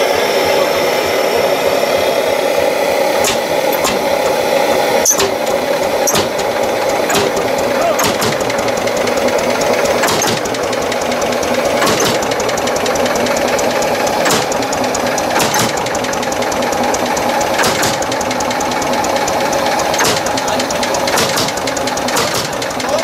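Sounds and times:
tractor engine knocking: 0:03.1 - 0:23.0
sharp knocks: 0:03.2 - 0:12.6, 0:14.2 - 0:16.0, 0:17.0 - 0:18.6, 0:19.7 - 0:22.8.

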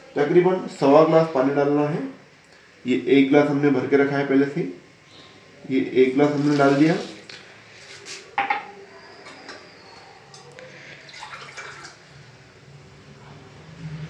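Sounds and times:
water trickling: 0:11.0 - 0:12.2.

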